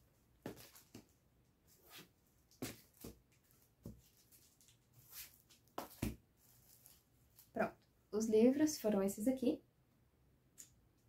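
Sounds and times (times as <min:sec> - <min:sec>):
books being handled: 0:00.4 - 0:07.5.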